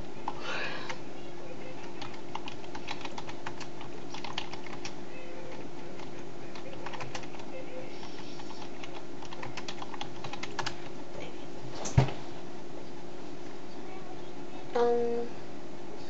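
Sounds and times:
low electrical hum: 0.0 - 16.0
keyboard typing clicks: 1.8 - 5.0, 6.0 - 7.4, 8.6 - 10.8.

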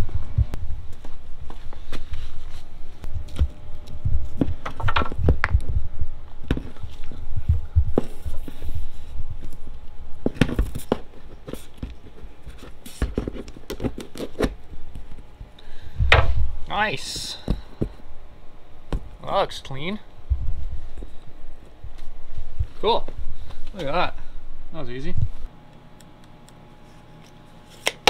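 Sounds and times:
low rumble: 0.0 - 1.4.

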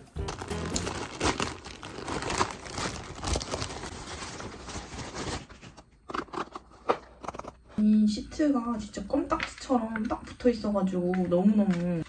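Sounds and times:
plastic bag crinkling: 0.0 - 5.8.

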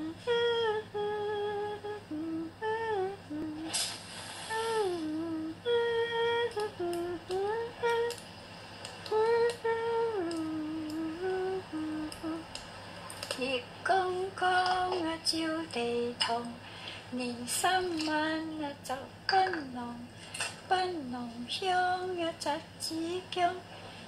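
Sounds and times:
woman humming: 0.0 - 3.8, 4.5 - 8.2, 9.1 - 12.5
short hiss: 3.6 - 4.9.

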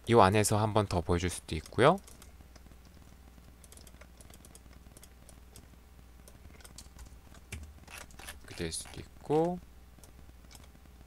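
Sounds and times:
low steady hum: 0.0 - 11.0
computer keyboard typing: 3.6 - 5.7.

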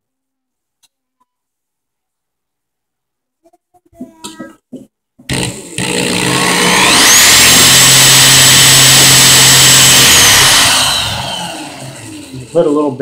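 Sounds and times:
electric drill whining: 5.3 - 12.8.

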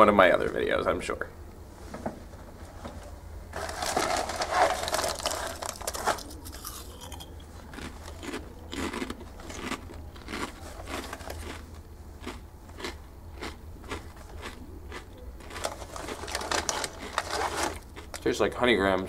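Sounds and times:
cracker packaging rustling: 3.5 - 18.3
crunching crackers: 3.5 - 19.0.

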